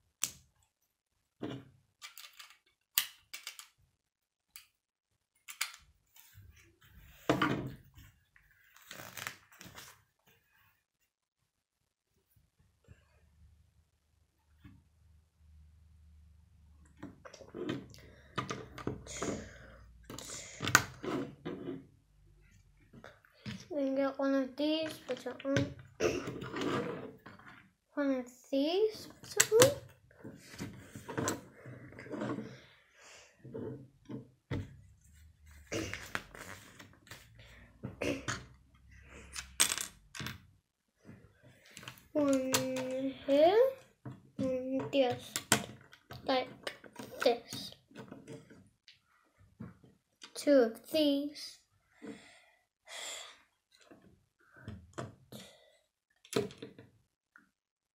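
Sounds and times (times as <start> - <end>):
plastic bricks clicking and rattling: 2.0 - 3.8.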